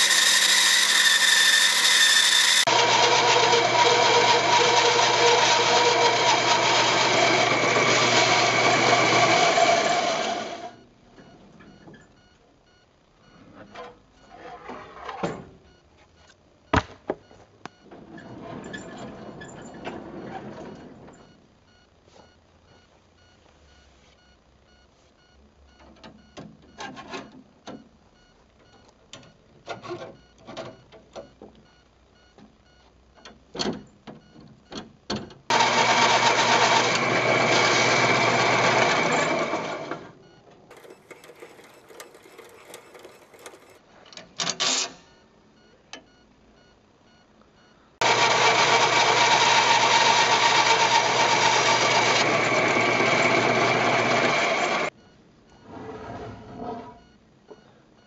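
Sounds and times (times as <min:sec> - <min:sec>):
power tool motor running: 0:00.0 - 0:10.8, 0:35.5 - 0:39.9, 0:48.0 - 0:54.9.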